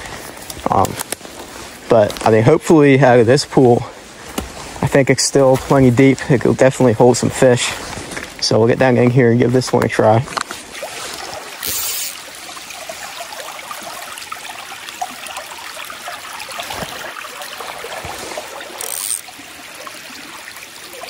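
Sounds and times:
creek burbling over rocks: 0.0s - 21.0s
short bursts of hiss: 11.6s - 12.2s.

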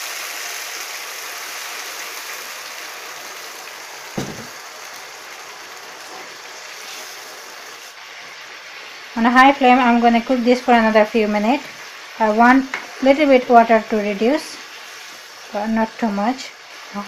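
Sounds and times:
pan sizzling and bubbling: 0.0s - 17.0s
short knock: 4.2s - 4.6s.

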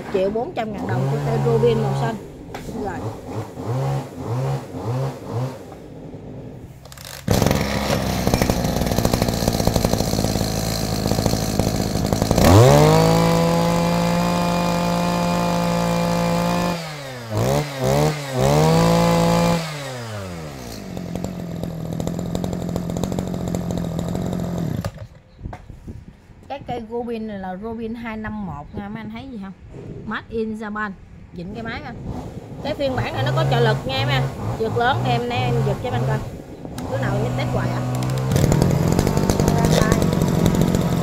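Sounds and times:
brush cutter engine revving: 0.0s - 25.2s, 32.0s - 41.0s
starter cord pulls: 6.8s - 16.8s, 36.8s - 41.0s.

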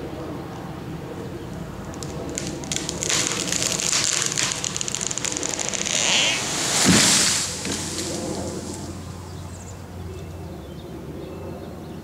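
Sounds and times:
wood cracking and snapping: 1.8s - 9.0s
branches and leaves rushing: 1.8s - 9.6s
tree trunk hitting ground: 1.9s - 9.0s.

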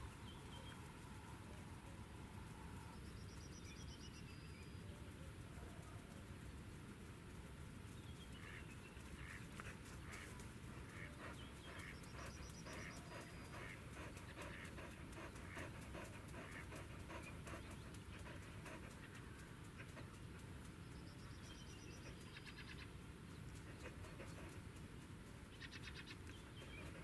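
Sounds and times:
dog panting: 9.0s - 22.2s, 23.4s - 25.3s, 26.2s - 27.0s.

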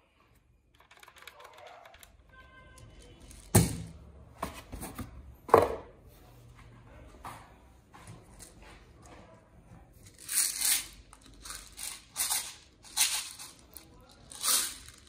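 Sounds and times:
pellets rattling in plastic jar: 10.1s - 15.0s.

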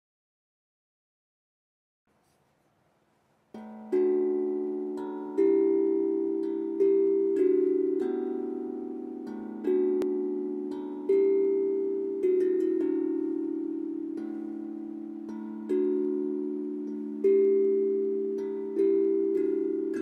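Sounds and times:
steel tongue drum melody: 3.5s - 20.0s.

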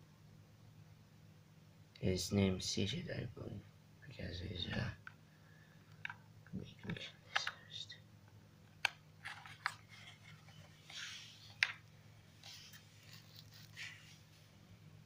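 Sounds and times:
faint low hum: 0.0s - 15.0s
hard drive being handled: 8.8s - 10.7s.

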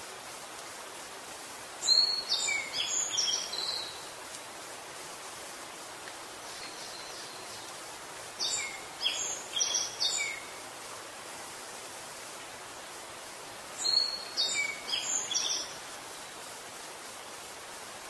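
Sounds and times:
outdoor background hiss: 0.0s - 18.0s
songbird singing: 1.8s - 4.2s, 6.4s - 10.6s, 13.7s - 16.4s.

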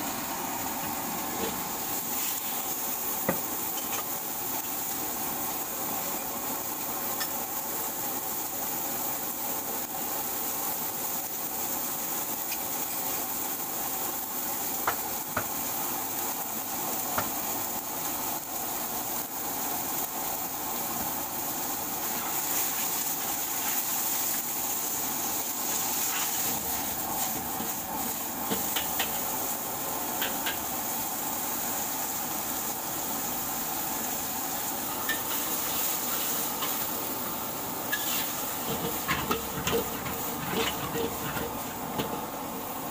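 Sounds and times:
rice sizzling in a wok: 0.0s - 42.9s
gas burner rushing: 13.1s - 42.9s.

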